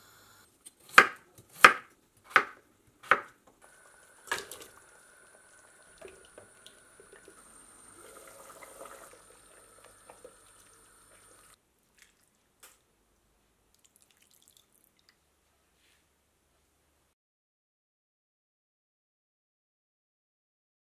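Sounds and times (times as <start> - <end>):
soup simmering and bubbling: 3.6 - 12.6, 13.7 - 15.3
faint steady hum: 3.6 - 13.8
soup being poured: 3.8 - 12.4, 13.7 - 15.2.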